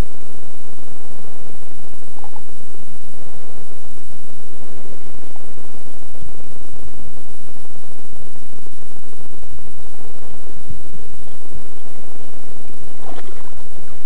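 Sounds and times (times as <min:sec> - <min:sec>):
low rumble: 0:00.0 - 0:14.0
steady hiss: 0:00.0 - 0:14.0.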